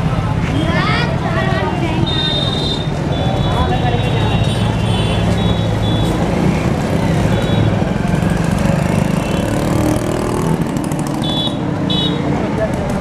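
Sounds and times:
street traffic: 0:00.0 - 0:13.0
motor engine running close by: 0:06.4 - 0:11.4.

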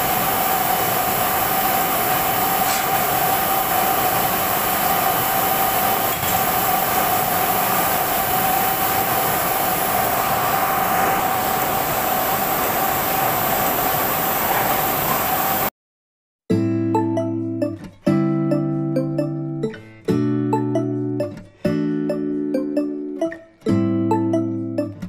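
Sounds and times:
printing press running: 0:00.0 - 0:15.7.

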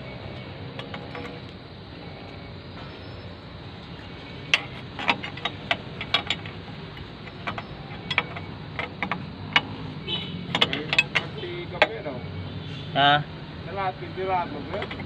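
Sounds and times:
wrench clicking on metal bolts: 0:04.4 - 0:09.8, 0:10.5 - 0:12.0.

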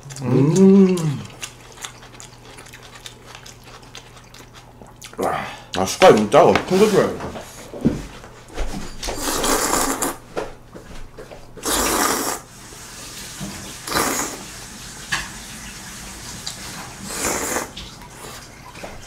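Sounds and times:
person slurping noodles: 0:09.2 - 0:10.2, 0:11.6 - 0:12.5, 0:13.8 - 0:14.4, 0:17.0 - 0:17.8.

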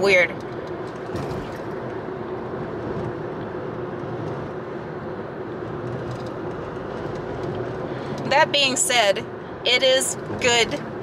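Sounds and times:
road noise: 0:00.0 - 0:11.0
wind rushing through car windows: 0:00.2 - 0:11.0.

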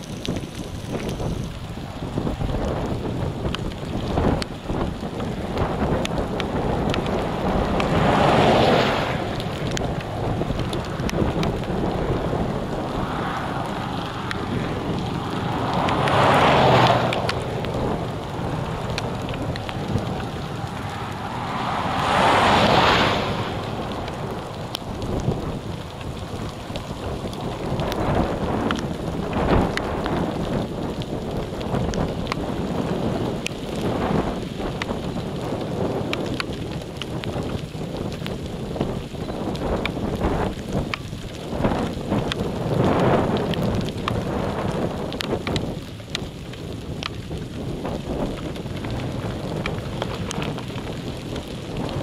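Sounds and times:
steady rain: 0:00.0 - 0:52.0
wind buffeting microphone: 0:00.0 - 0:52.0
whooshing gust: 0:04.9 - 0:28.5
faint ticks: 0:13.3 - 0:21.2, 0:24.0 - 0:52.0.

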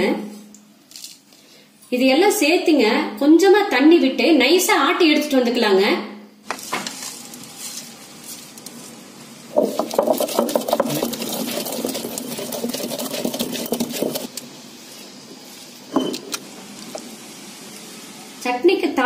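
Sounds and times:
stone grinder rumbling: 0:09.5 - 0:14.3.

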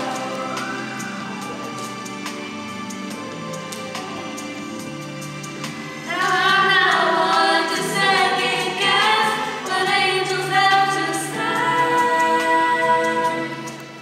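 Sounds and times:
girls singing into a microphone: 0:00.0 - 0:01.9, 0:06.0 - 0:14.0.

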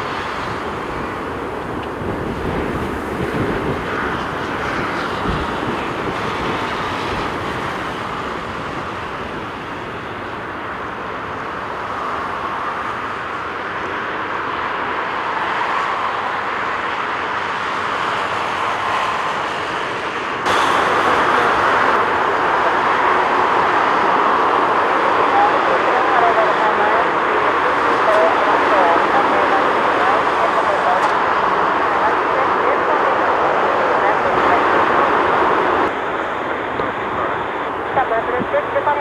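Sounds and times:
jet engines at takeoff thrust: 0:00.0 - 0:39.0
loud bright jet noise: 0:18.2 - 0:24.9.

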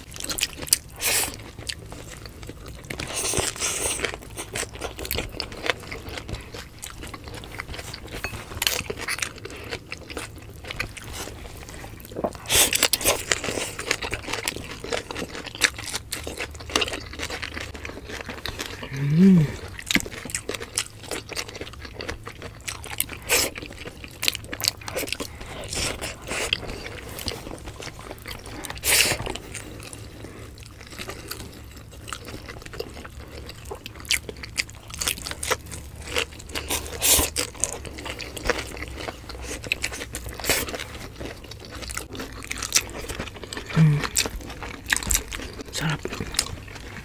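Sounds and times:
crunching and chewing vegetables: 0:00.0 - 0:47.0
soft mouth sounds: 0:18.5 - 0:19.8, 0:43.6 - 0:44.4, 0:45.4 - 0:47.0.

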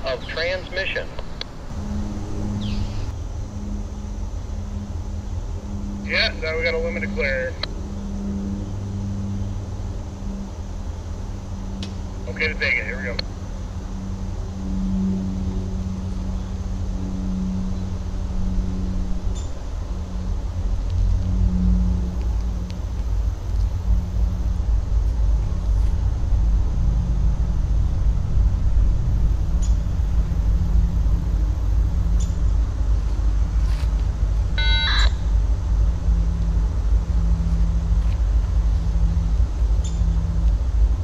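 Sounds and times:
diesel locomotive rumble: 0:00.0 - 0:41.0
short high tone: 0:34.6 - 0:35.3.

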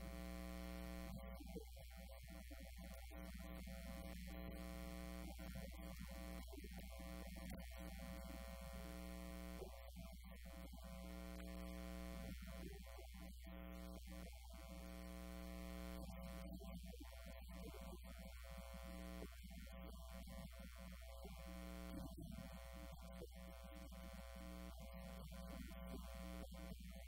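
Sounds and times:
electrical mains hum: 0:00.0 - 0:27.0.

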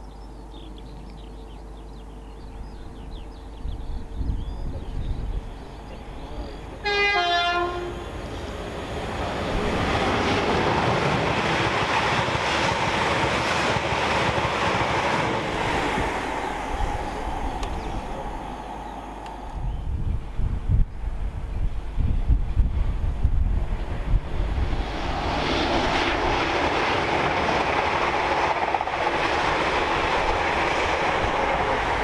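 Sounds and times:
train passing with wheel noise: 0:00.0 - 0:32.0
two-tone train horn: 0:06.8 - 0:08.2.

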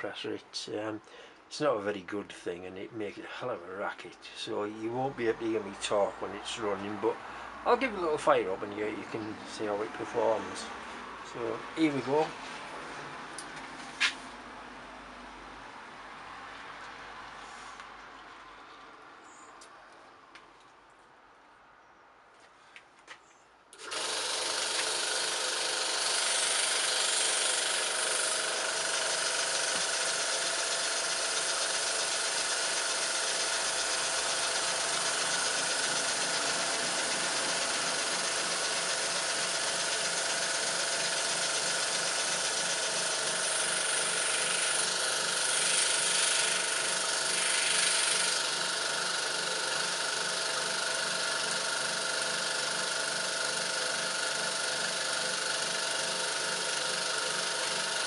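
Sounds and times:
airbrush compressor running loudly: 0:23.8 - 0:58.0
model steam engine beat: 0:25.7 - 0:58.0.

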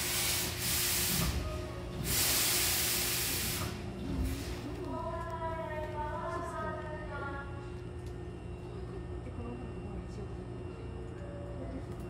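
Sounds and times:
pneumatic train doors hissing: 0:00.0 - 0:04.6.

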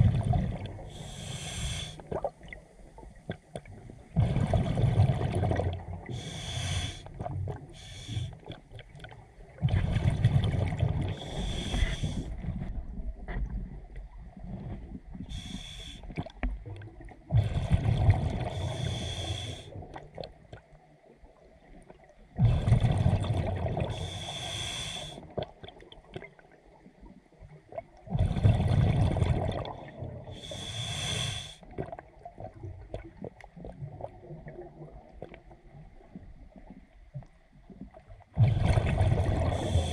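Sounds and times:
exhaled bubbles rushing: 0:00.0 - 0:00.9, 0:04.1 - 0:06.2, 0:09.5 - 0:11.5, 0:17.3 - 0:18.7, 0:22.4 - 0:24.0, 0:28.1 - 0:30.2, 0:38.4 - 0:39.9
regulator hiss on inhale: 0:00.9 - 0:02.0, 0:06.2 - 0:08.4, 0:11.2 - 0:12.3, 0:15.3 - 0:16.1, 0:18.5 - 0:19.7, 0:23.9 - 0:25.2, 0:30.4 - 0:31.6, 0:39.5 - 0:39.9.

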